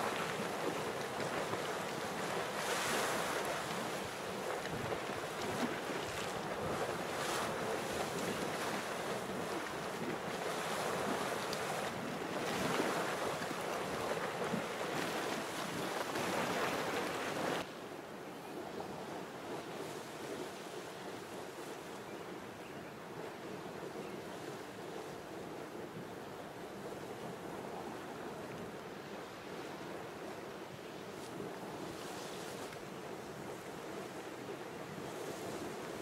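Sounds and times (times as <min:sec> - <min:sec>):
geyser boiling and splashing: 0:00.0 - 0:17.7
steaming pool rushing: 0:00.0 - 0:17.7.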